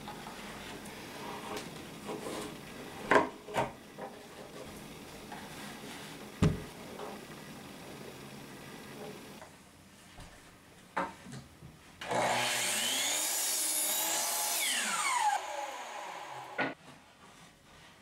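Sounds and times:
knocks on wood: 0:06.4 - 0:06.7.

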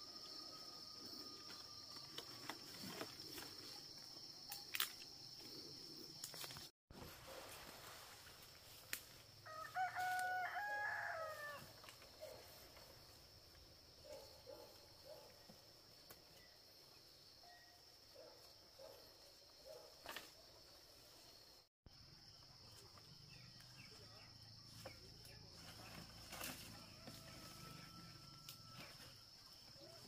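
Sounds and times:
rooster crowing: 0:09.4 - 0:11.8, 0:26.6 - 0:29.0.

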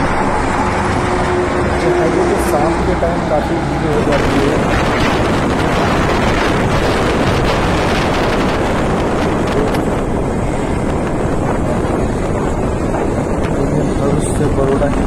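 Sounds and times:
road and traffic noise: 0:00.0 - 0:15.0
wind buffeting microphone: 0:00.0 - 0:15.0.

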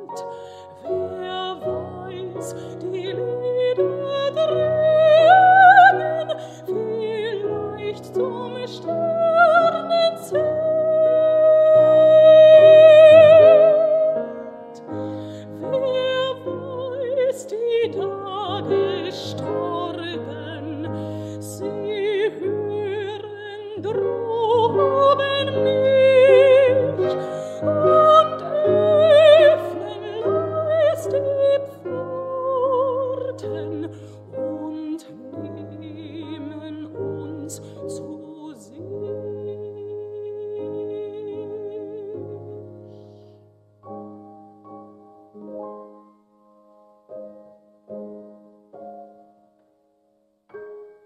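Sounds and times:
woman singing with vibrato: 0:00.0 - 0:14.6, 0:15.3 - 0:42.7
piano accompaniment: 0:00.0 - 0:51.0.

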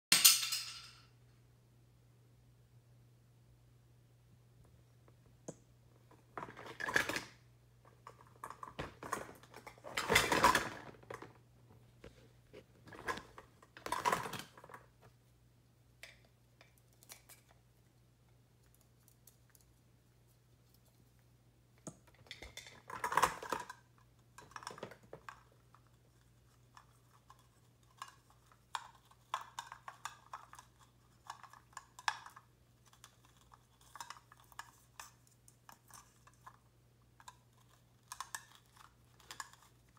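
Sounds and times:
toys clattering and rattling: 0:06.1 - 0:11.4, 0:12.8 - 0:14.9, 0:21.9 - 0:25.9, 0:26.8 - 0:39.9.

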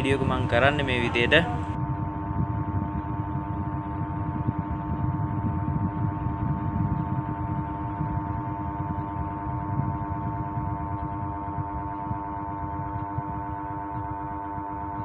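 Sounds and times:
electrical hum: 0:00.0 - 0:15.0
low rumble of air: 0:00.0 - 0:15.0.

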